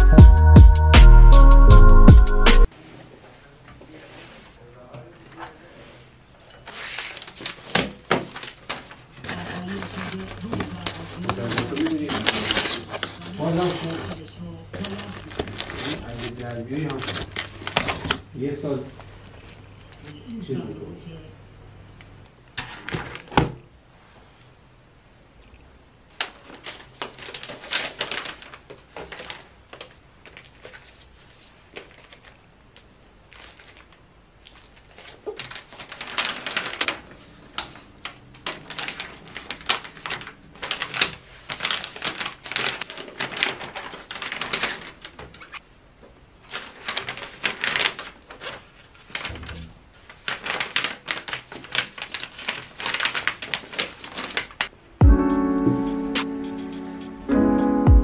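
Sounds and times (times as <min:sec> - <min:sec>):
paper and plastic bag crinkling: 0:05.2 - 0:20.2, 0:26.1 - 0:54.8.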